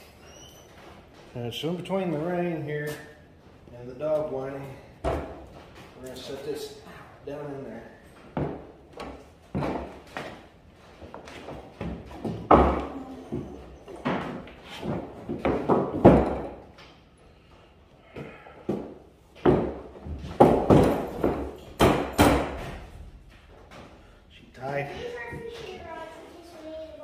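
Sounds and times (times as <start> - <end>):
wooden boards knocking on workbench: 15.3 - 16.6, 19.4 - 22.6.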